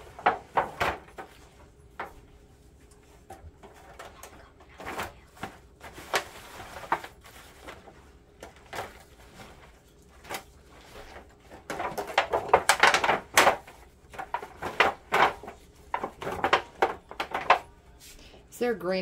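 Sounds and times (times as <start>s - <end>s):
foil pan crinkling: 3.3s - 17.9s.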